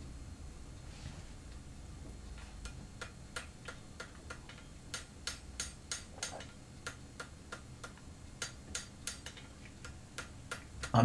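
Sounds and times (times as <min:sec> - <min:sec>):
hammer striking hot steel on anvil: 0:03.0 - 0:11.0.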